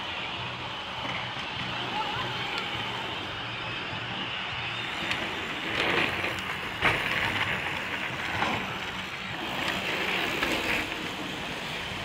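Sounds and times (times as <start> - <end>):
bike tyres crunching on gravel: 4.6 - 11.6.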